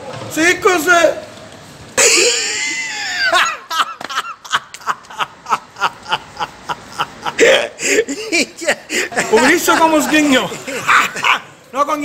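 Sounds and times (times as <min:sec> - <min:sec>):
person laughing: 0:02.0 - 0:11.5.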